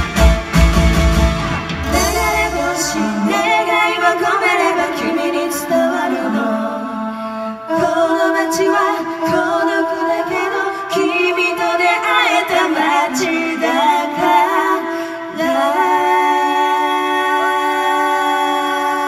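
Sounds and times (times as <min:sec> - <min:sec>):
band with bass and drums: 0:00.0 - 0:03.4
two women singing: 0:01.8 - 0:19.0.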